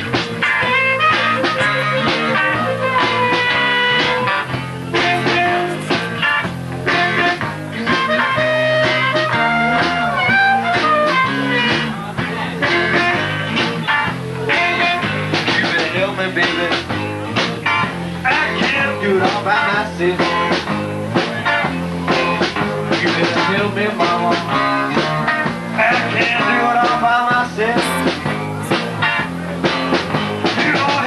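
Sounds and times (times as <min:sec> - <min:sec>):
blues band playing: 0:00.0 - 0:31.0
amplified harmonica: 0:00.5 - 0:06.1, 0:06.9 - 0:11.8.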